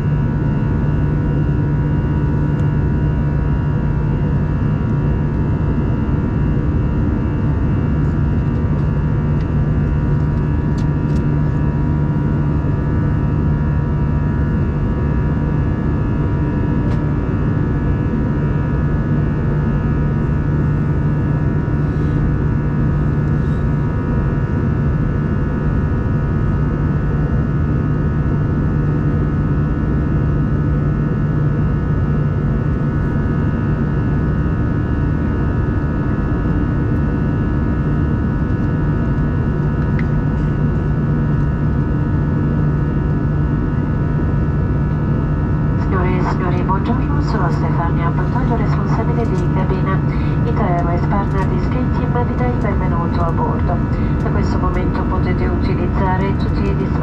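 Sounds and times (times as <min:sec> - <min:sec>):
airliner cabin engine drone: 0:00.0 - 0:57.0.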